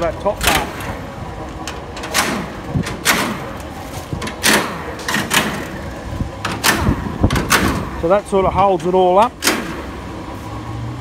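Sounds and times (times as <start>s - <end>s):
pneumatic impact wrench: 2.0s - 3.6s, 4.2s - 8.0s, 9.3s - 10.0s.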